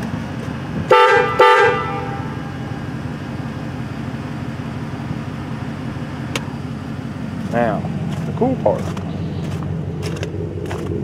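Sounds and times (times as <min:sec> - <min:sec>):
steady low hum: 0:00.0 - 0:11.0
air horn blasts: 0:00.8 - 0:02.8.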